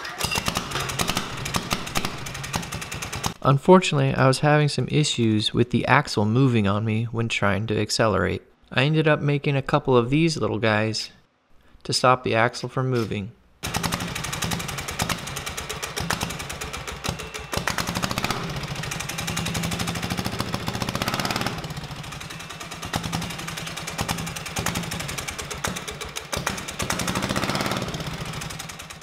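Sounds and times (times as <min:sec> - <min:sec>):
small diesel engine knocking: 0:00.3 - 0:03.4, 0:13.6 - 0:29.0.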